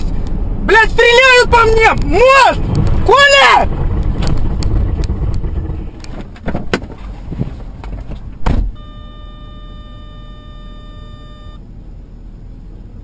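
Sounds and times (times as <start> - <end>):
low rumble: 1.8 - 13.0
steady electronic tone: 8.8 - 11.6.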